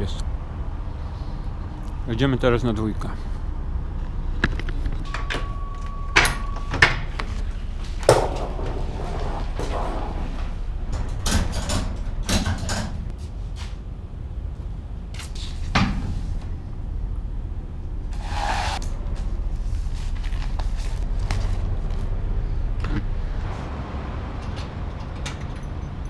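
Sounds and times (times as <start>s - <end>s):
low steady rumble: 0.0s - 26.0s
steady beep: 5.1s - 6.8s.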